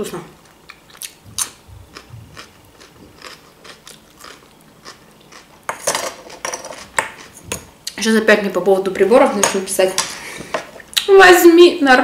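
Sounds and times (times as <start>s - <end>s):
wet chewing clicks: 0.6s - 5.5s.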